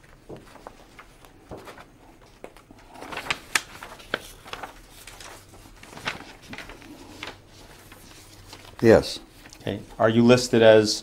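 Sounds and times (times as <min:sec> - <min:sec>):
paper rustling: 0:00.0 - 0:10.7.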